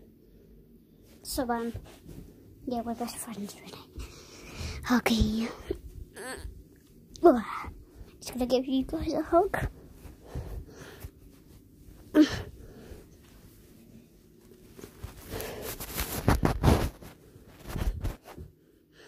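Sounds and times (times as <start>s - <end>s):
fur rubbing on microphone: 13.2s - 18.4s.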